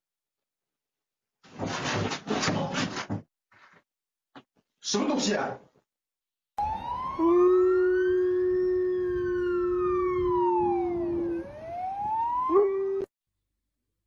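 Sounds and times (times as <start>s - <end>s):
police siren wailing: 6.6s - 13.1s
dog howling: 7.1s - 11.7s, 12.4s - 13.1s.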